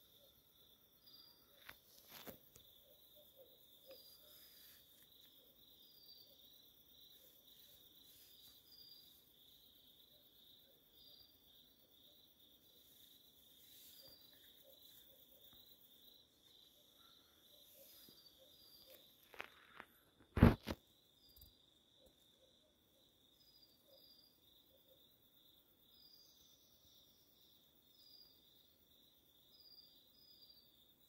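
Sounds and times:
insect high-pitched trill: 0.0s - 19.8s
insect chirps: 0.0s - 31.0s.

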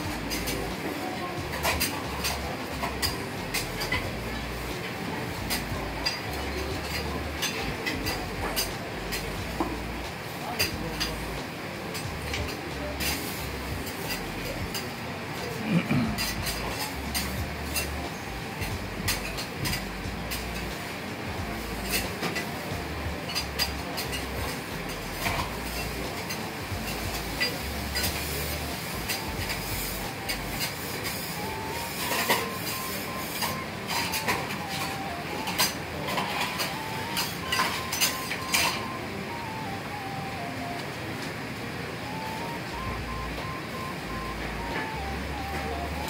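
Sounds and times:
food cooking on griddle: 0.0s - 38.9s
metal utensils clinking: 1.5s - 9.3s, 21.6s - 38.9s
faint tune of single notes: 31.4s - 46.0s.

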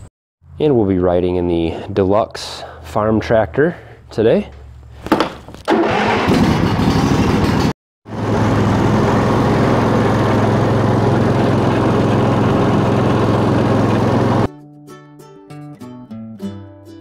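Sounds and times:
riding lawn mower engine running: 5.0s - 14.5s.

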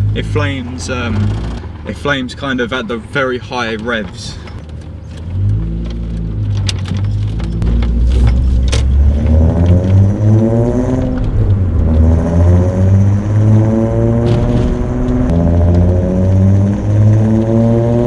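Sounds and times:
car engine accelerating hard: 4.8s - 18.0s.

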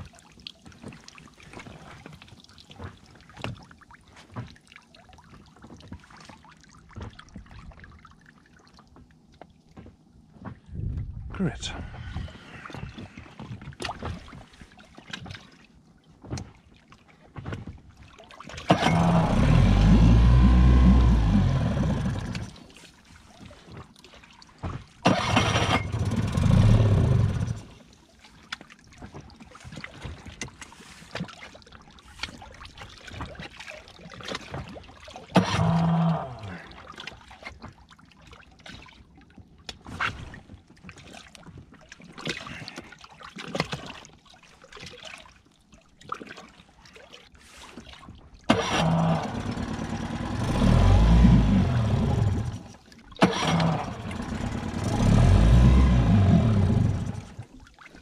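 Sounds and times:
outboard motor electric starter cranking: 18.7s - 22.6s, 25.0s - 27.7s, 48.5s - 52.6s, 53.2s - 57.4s.

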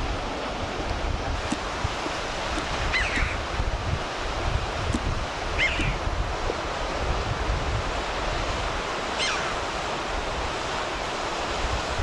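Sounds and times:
surf: 0.0s - 12.0s
wind: 0.0s - 12.0s
wind rumbling on microphone: 0.0s - 12.0s
bird calls sharp and falling: 2.8s - 3.4s, 5.6s - 6.0s, 9.2s - 9.6s.

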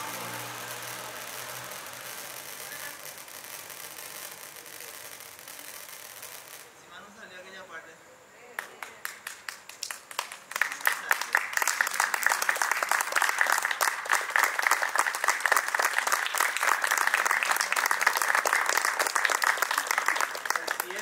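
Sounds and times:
audience applauding: 8.6s - 21.0s.

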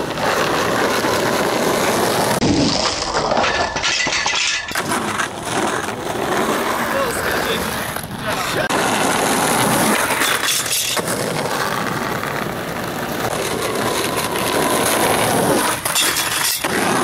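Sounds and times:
skateboard wheels rolling on asphalt: 0.0s - 17.0s
skateboard wooden clacks: 7.6s - 17.0s.

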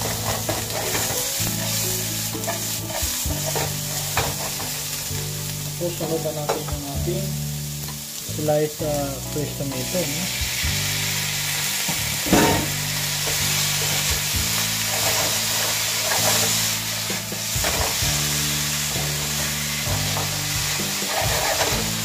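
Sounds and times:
spatula scraping and knocking pan: 0.0s - 4.8s, 19.4s - 22.0s
vegetables sizzling in oil: 0.0s - 22.0s.

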